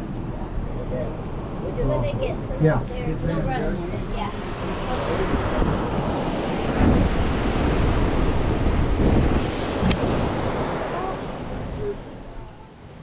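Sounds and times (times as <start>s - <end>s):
wind gusting on microphone: 0.0s - 13.0s
ocean surf breaking on rocks: 0.5s - 13.0s.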